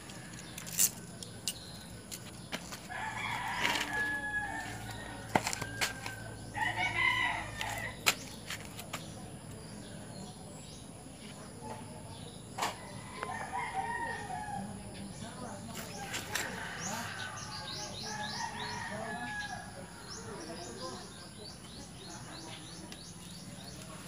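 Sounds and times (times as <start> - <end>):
rooster crowing: 2.9 - 8.0, 13.2 - 14.8, 16.5 - 19.8.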